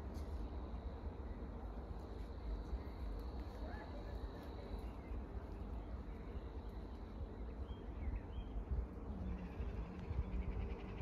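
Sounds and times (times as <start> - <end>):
wind buffeting microphone: 8.0 - 11.0.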